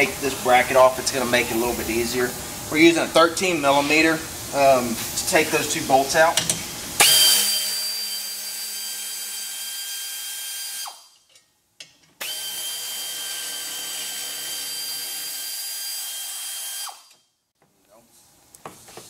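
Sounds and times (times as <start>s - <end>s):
air ratchet whining: 12.2s - 17.3s.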